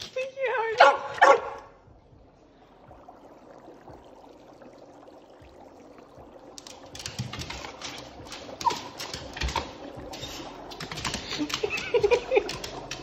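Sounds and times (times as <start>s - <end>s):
dog yelping: 0.8s - 1.6s.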